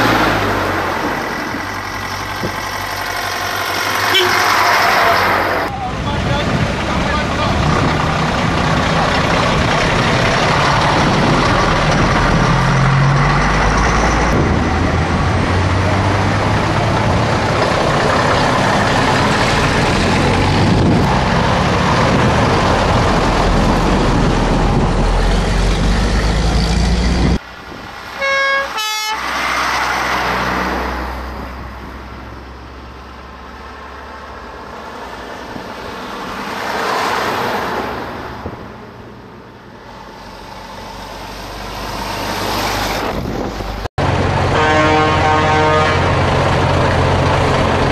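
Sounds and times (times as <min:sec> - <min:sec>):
diesel truck engines running: 0:00.0 - 0:47.9
truck engine approaching: 0:00.0 - 0:47.9
short horn toot: 0:04.1 - 0:04.6, 0:44.5 - 0:46.0.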